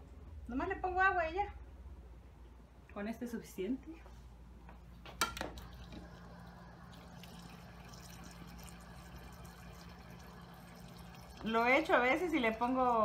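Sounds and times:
water trickling into glass: 0:05.6 - 0:13.0.

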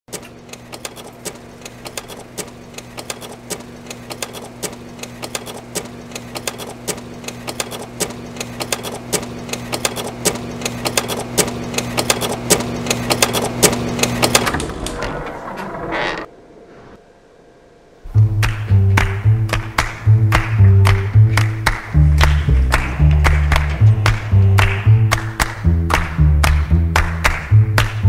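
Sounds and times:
irregular sharp clicks: 0:00.1 - 0:14.7
low electrical hum: 0:00.2 - 0:28.0.

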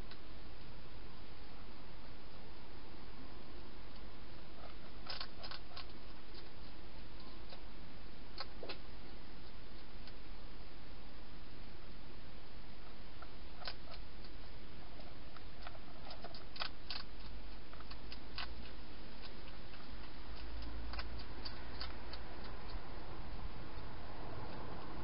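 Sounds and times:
microphone hiss: 0:00.0 - 0:25.0
hedgehog foraging clicks: 0:03.9 - 0:07.7, 0:08.3 - 0:08.8, 0:13.2 - 0:14.4, 0:15.0 - 0:25.0.

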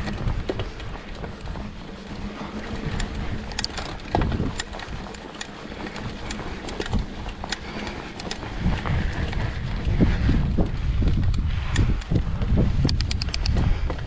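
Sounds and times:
tyres rolling over dirt and rock: 0:00.0 - 0:11.2
bike chain and frame rattling: 0:00.0 - 0:14.0
wind on microphone: 0:00.0 - 0:14.0.

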